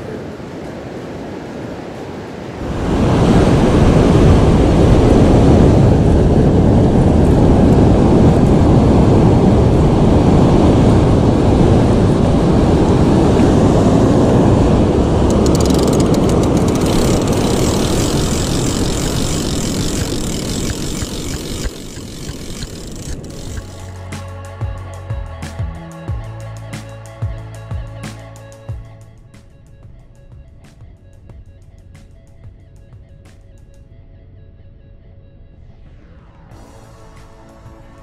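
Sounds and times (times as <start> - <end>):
ocean surf roaring: 0.0 - 23.8
wind on microphone: 0.0 - 24.0.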